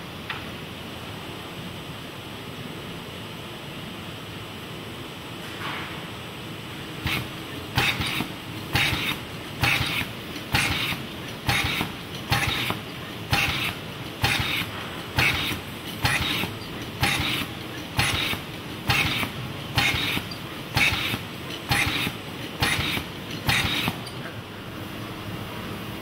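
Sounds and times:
steady machine background: 0:00.0 - 0:26.0
robot gripper bursts: 0:07.0 - 0:24.3.

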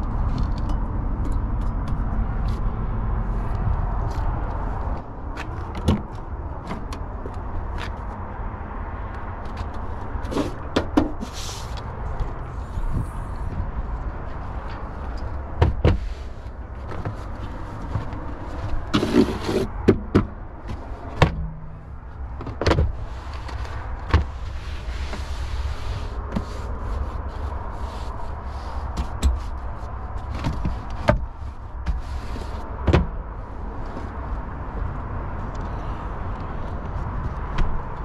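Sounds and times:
steady low rumble: 0:00.0 - 0:38.0
car hardware clicks and knocks: 0:00.1 - 0:02.6, 0:05.0 - 0:08.0, 0:10.5 - 0:11.2, 0:14.7 - 0:16.1, 0:17.8 - 0:24.3, 0:29.0 - 0:29.5, 0:30.2 - 0:33.3, 0:36.4 - 0:38.0.

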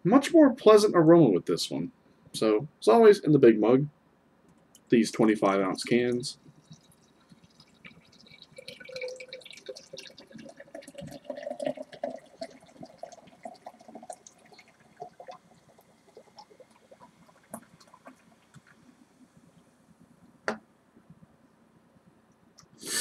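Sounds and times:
fizz crackling: 0:05.1 - 0:20.2
liquid pouring into mug: 0:05.8 - 0:19.2.

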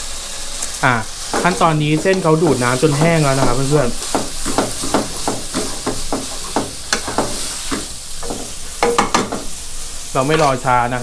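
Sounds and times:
light sizzle: 0:00.0 - 0:11.0
spatula scraping and tapping pan: 0:01.3 - 0:09.6.

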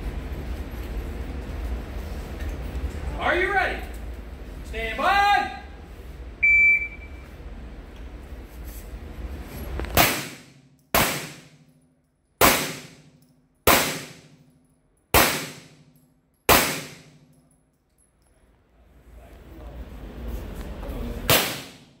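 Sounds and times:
pistol shots echoing: 0:10.0 - 0:11.5, 0:12.4 - 0:13.1, 0:13.7 - 0:14.4, 0:15.2 - 0:15.8, 0:16.5 - 0:17.2, 0:21.3 - 0:22.0.

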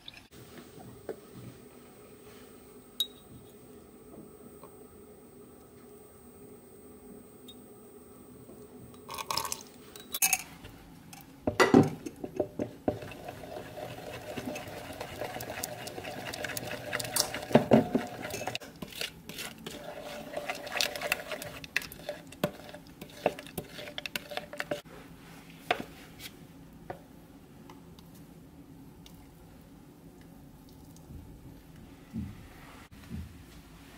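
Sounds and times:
spoon scraping bowl: 0:12.9 - 0:24.8.

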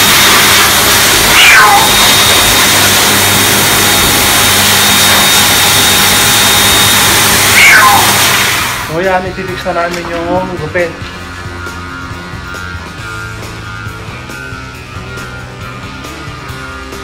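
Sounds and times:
pet dryer blowing: 0:00.0 - 0:09.0
cat meowing: 0:01.3 - 0:02.1, 0:07.6 - 0:08.2.

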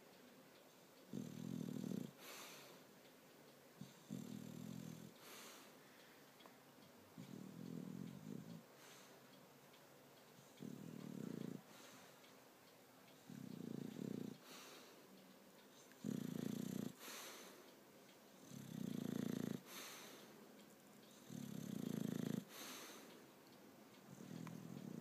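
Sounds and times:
dog snoring: 0:01.1 - 0:02.7, 0:03.8 - 0:05.4, 0:07.2 - 0:09.1, 0:10.4 - 0:12.0, 0:13.2 - 0:14.9, 0:15.9 - 0:17.4, 0:18.4 - 0:20.1, 0:21.1 - 0:23.0, 0:24.1 - 0:25.0
soft airy breath: 0:02.1 - 0:03.0, 0:05.0 - 0:06.5, 0:07.2 - 0:09.4, 0:10.4 - 0:12.5, 0:13.1 - 0:16.1, 0:16.9 - 0:17.8, 0:19.6 - 0:21.2, 0:22.4 - 0:23.4.

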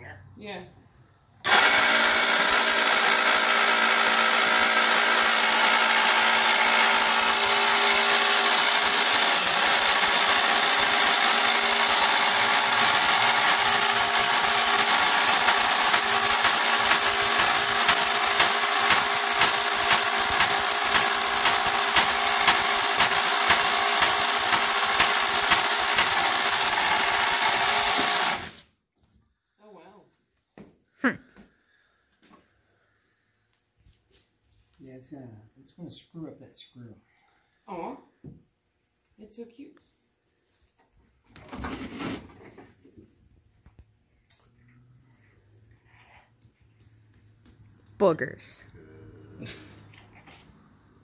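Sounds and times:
power tool motor whine: 0:01.5 - 0:28.6.

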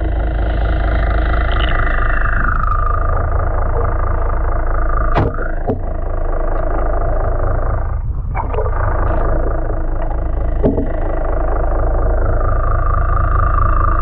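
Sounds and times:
rising whine: 0:00.0 - 0:14.0
underwater boat engine drone: 0:00.0 - 0:14.0
sharp knocks: 0:05.1 - 0:05.9, 0:10.6 - 0:11.1.

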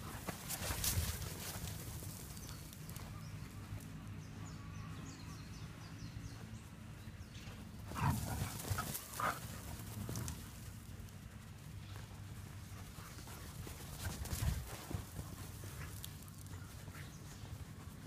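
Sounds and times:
running footsteps on soft dirt: 0:00.0 - 0:03.9, 0:07.3 - 0:18.0
dog's paws scampering: 0:07.9 - 0:10.8, 0:11.8 - 0:18.0.

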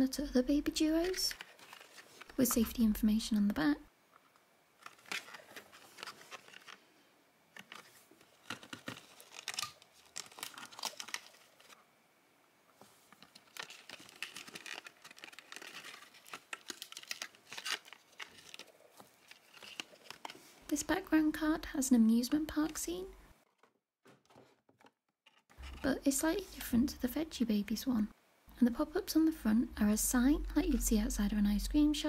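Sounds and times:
cardboard packaging crackling: 0:00.9 - 0:02.7, 0:04.8 - 0:06.9, 0:07.5 - 0:11.8, 0:12.9 - 0:20.6.

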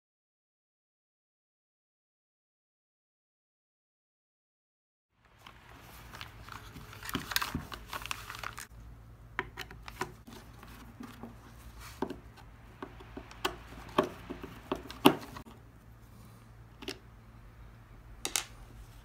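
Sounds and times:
paper rustling: 0:05.3 - 0:08.7, 0:09.8 - 0:12.2
plastic parts clicking and tapping: 0:09.4 - 0:11.3, 0:12.8 - 0:15.5, 0:16.8 - 0:17.0, 0:18.2 - 0:18.6.

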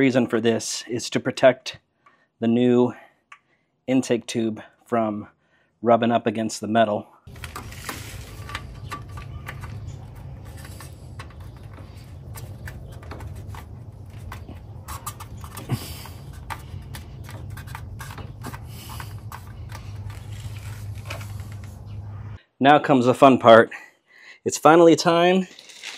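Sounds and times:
steady low hum: 0:07.3 - 0:22.4
light scrapes and clicks: 0:07.4 - 0:22.0.

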